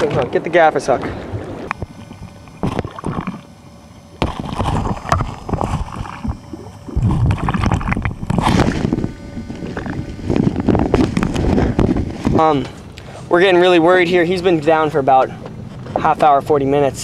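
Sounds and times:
water sloshing and splashing: 0:01.4 - 0:08.9.

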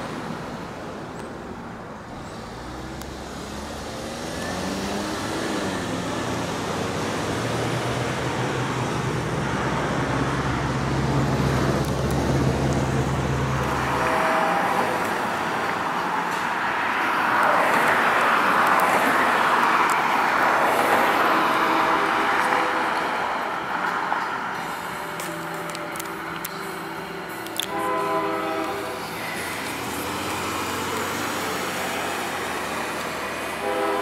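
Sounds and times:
cars driving past: 0:00.0 - 0:34.0.

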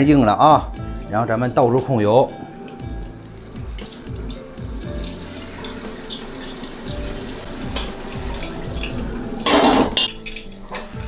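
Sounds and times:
background music with beat: 0:00.0 - 0:11.0
oil pouring through metal strainer: 0:00.8 - 0:11.0.

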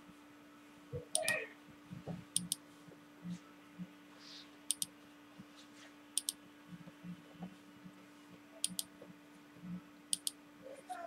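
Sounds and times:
faint steady hum: 0:00.0 - 0:11.0
computer mouse clicks: 0:02.4 - 0:02.6, 0:04.7 - 0:04.9, 0:06.2 - 0:06.4, 0:08.6 - 0:08.9, 0:10.1 - 0:10.4.

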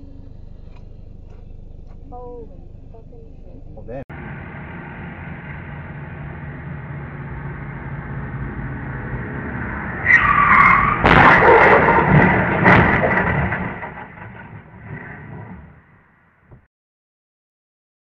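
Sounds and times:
vehicle collision crash: 0:04.1 - 0:16.6
debris clattering: 0:05.6 - 0:16.0
tyres screeching: 0:05.7 - 0:15.5.

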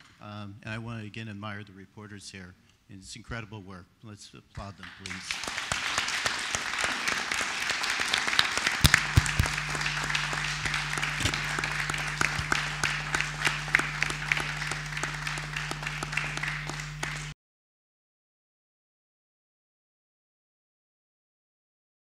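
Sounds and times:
audience applauding: 0:04.8 - 0:17.4
steady low hum: 0:08.7 - 0:17.4.

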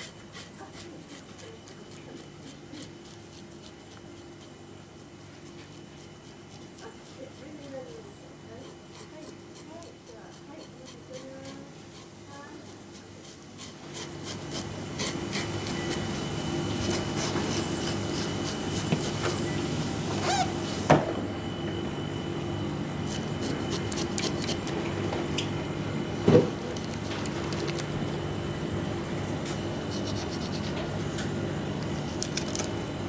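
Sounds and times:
knife scraping fish scales: 0:00.0 - 0:08.0, 0:08.6 - 0:16.1, 0:16.7 - 0:19.2, 0:23.0 - 0:24.8, 0:29.8 - 0:31.1
steady hum: 0:13.5 - 0:33.0.

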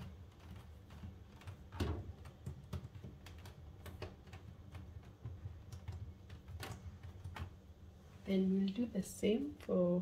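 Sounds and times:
fingers tapping on tape: 0:00.0 - 0:07.6.

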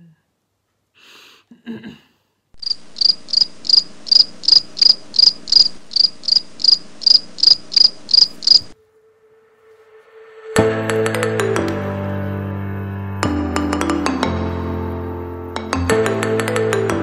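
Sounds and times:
cricket chirping: 0:02.6 - 0:08.8.

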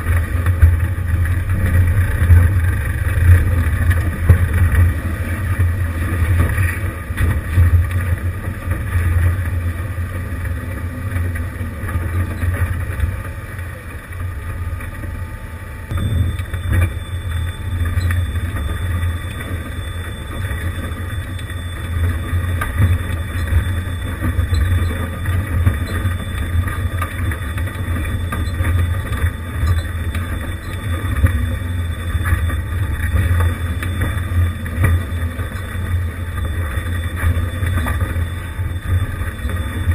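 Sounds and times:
vehicle engine at low revs: 0:00.0 - 0:39.9.

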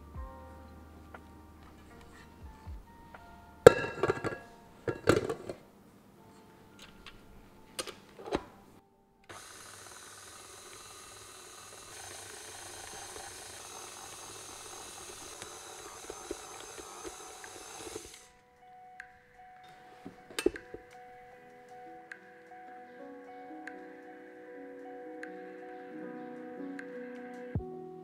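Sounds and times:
stand mixer running: 0:09.3 - 0:18.3.

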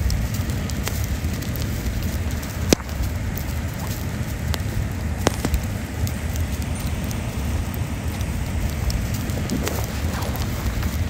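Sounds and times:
campfire crackling: 0:00.0 - 0:11.0
fire popping: 0:00.0 - 0:11.0
low rumbling noise: 0:00.0 - 0:11.0.

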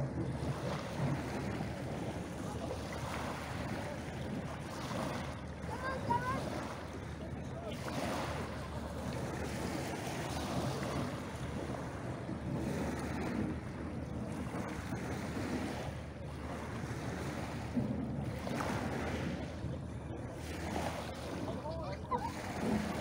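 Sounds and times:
wind buffeting microphone: 0:00.0 - 0:23.0
waves washing on pebbles: 0:20.2 - 0:23.0.

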